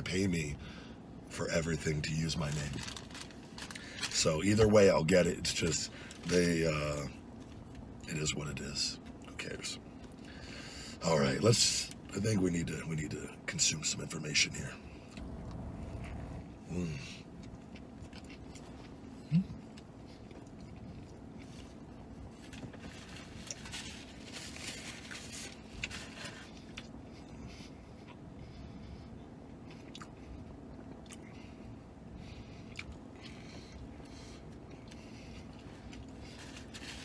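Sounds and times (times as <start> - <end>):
man chewing food: 14.9 - 37.0.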